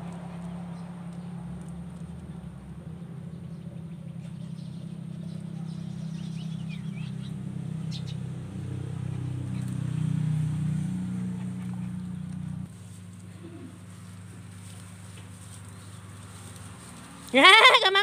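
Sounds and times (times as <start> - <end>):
bird chirps: 3.3 - 8.3.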